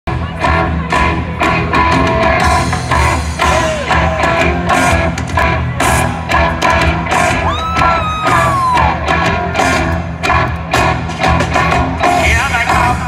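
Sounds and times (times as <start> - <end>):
live rock band: 0.1 - 13.0
steady drum beat: 0.1 - 13.0.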